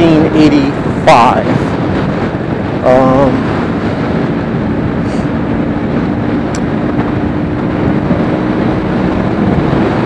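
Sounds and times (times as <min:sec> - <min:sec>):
wind rushing over microphone: 0:00.0 - 0:10.0.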